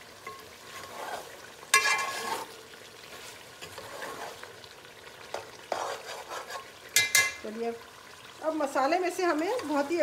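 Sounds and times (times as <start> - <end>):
masala sizzling: 0.0 - 10.0
metal spoon scraping pot: 0.3 - 2.6, 3.6 - 4.5, 5.3 - 7.4.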